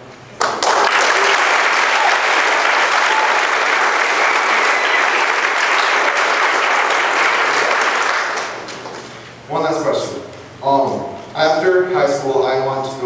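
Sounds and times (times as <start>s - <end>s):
large audience applauding: 0.4s - 9.2s.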